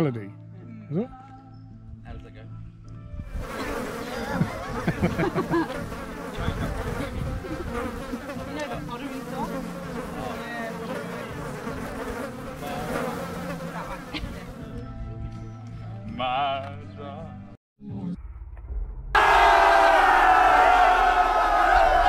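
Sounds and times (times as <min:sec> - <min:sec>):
flying insects buzzing: 0:03.3 - 0:14.7.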